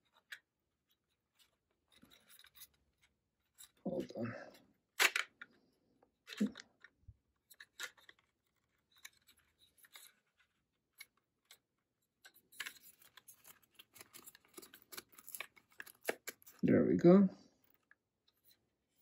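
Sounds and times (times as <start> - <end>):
plastic clicks: 5.0 - 5.6
plastic scraping: 6.2 - 16.6.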